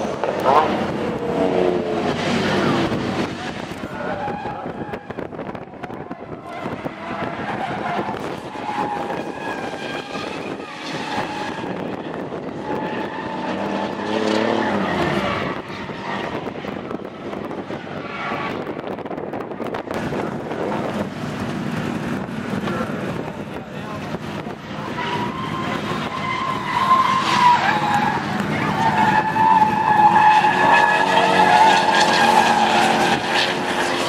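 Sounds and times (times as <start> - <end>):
car engines revving: 0.0 - 34.0
tyres squealing: 24.7 - 34.0.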